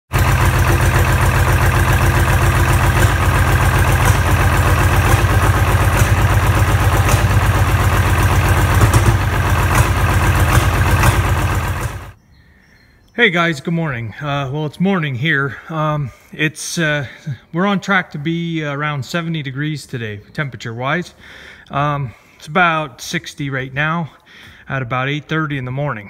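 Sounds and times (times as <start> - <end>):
tractor diesel engine idling: 0.1 - 12.2.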